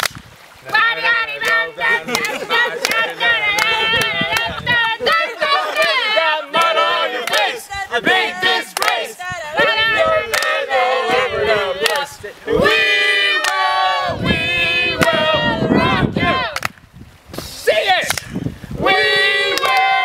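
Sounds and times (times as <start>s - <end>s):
group singing in unison: 0.6s - 16.6s, 18.8s - 20.0s.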